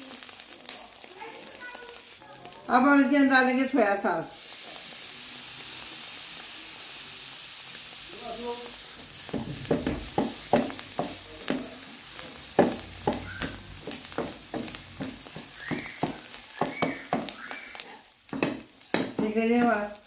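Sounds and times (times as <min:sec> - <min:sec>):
frying sizzle: 0:00.0 - 0:20.0
wooden spoon scraping a wok: 0:08.8 - 0:20.0.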